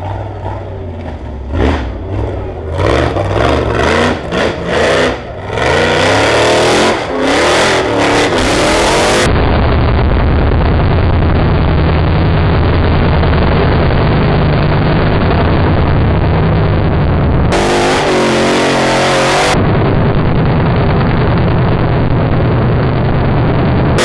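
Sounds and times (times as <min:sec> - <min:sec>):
buggy engine revving: 0:00.0 - 0:09.4, 0:12.1 - 0:19.8.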